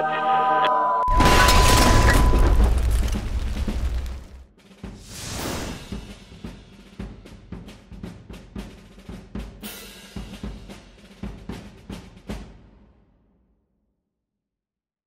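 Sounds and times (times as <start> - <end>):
drum kit beat: 5.8 - 12.8.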